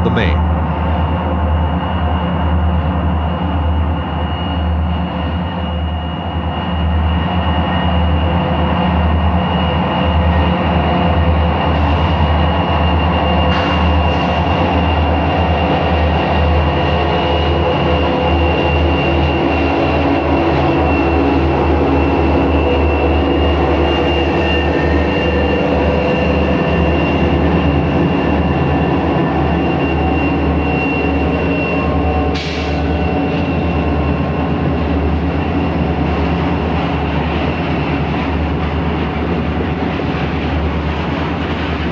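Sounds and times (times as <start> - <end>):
locomotive engine drone: 0.0 - 41.9.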